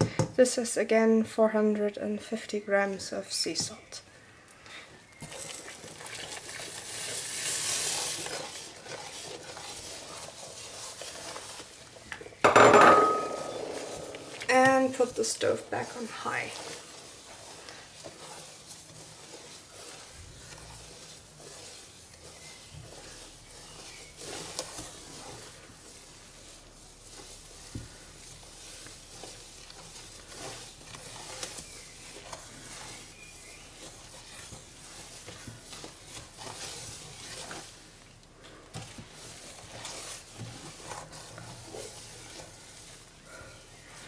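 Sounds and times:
spoon swishing through liquid: 0:05.2 - 0:12.1, 0:13.0 - 0:44.0
spoon knocking against metal pot: 0:12.4 - 0:14.5.

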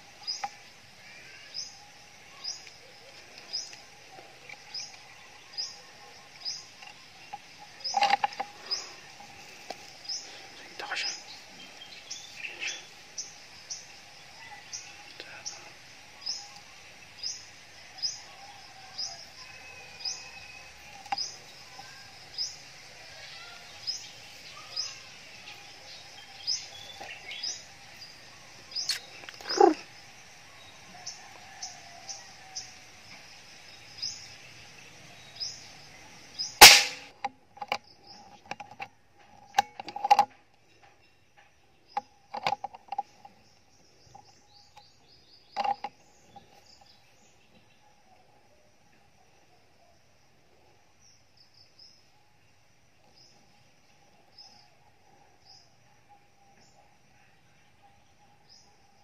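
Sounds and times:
air rifle shot: 0:36.6 - 0:37.1.

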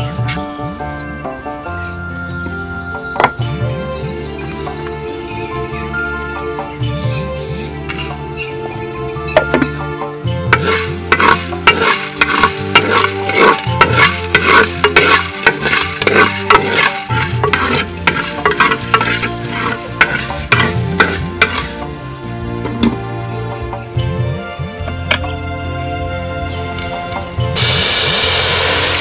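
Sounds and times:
soft background music: 0:00.0 - 0:29.0
spoon scraping a pot: 0:10.5 - 0:21.8
light sizzle: 0:10.5 - 0:22.3, 0:27.5 - 0:29.0.

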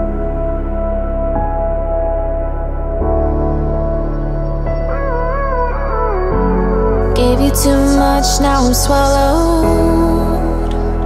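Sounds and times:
slow ambient chords: 0:00.0 - 0:11.0.

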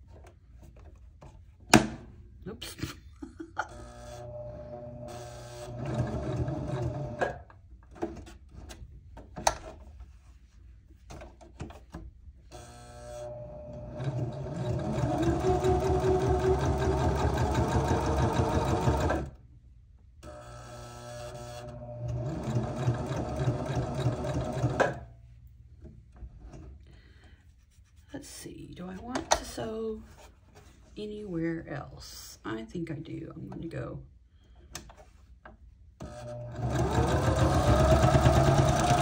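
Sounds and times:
sewing machine stitching: 0:03.8 - 0:08.3, 0:12.6 - 0:19.4, 0:21.2 - 0:25.0, 0:36.0 - 0:39.0.

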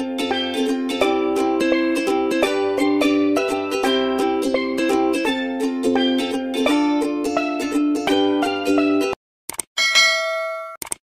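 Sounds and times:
background music: 0:00.0 - 0:09.2
bright bell ding: 0:09.8 - 0:10.8.

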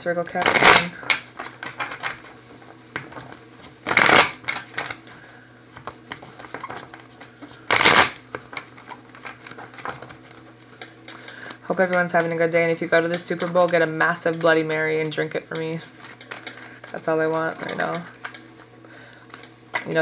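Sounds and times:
cards shuffled by hand: 0:00.4 - 0:05.1, 0:05.7 - 0:10.6.

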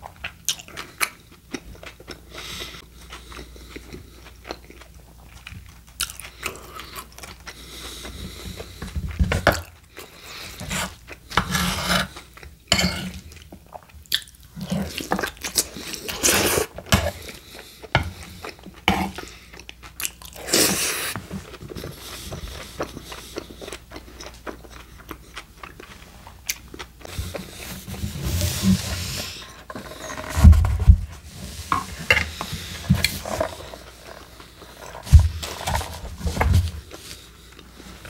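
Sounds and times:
close chewing with wet mouth sounds: 0:00.0 - 0:11.3, 0:12.1 - 0:27.6.

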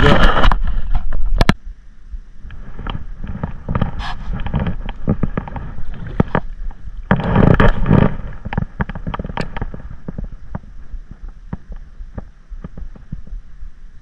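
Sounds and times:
sharp clicks and knocks: 0:02.5 - 0:13.4.

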